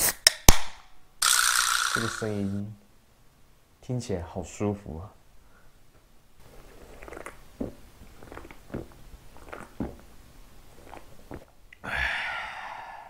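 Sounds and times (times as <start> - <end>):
person gulping beer: 6.4 - 12.0
person sighing ahh: 11.8 - 13.0.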